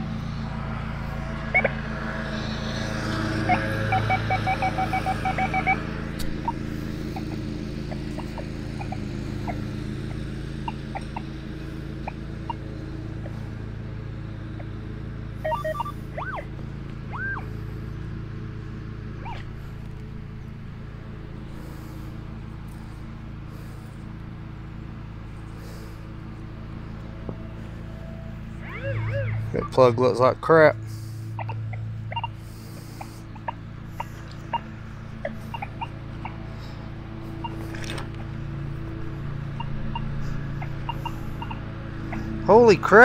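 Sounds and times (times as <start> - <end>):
lawn mower engine running: 0.0 - 43.0
short high beeps: 3.5 - 5.8, 15.5 - 15.9.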